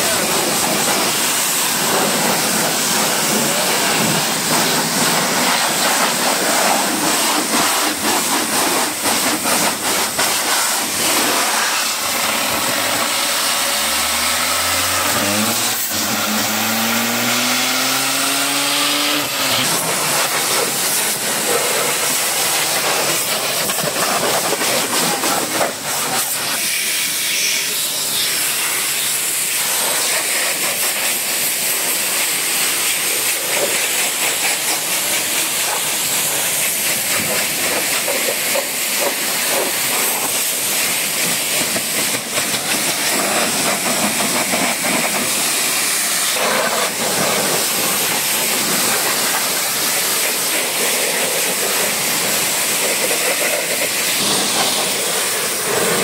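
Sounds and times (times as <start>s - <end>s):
pressure washer water jet hissing: 0.0s - 56.0s
multi-tone hum rising in pitch: 12.0s - 19.8s.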